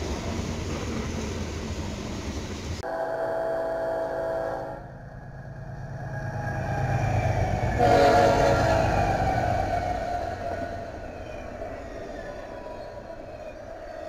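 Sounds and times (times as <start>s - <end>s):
train cars rolling on rails: 0.0s - 2.8s, 4.8s - 14.0s
locomotive horn: 2.8s - 4.9s, 7.8s - 9.1s
locomotive rumble: 4.6s - 14.0s.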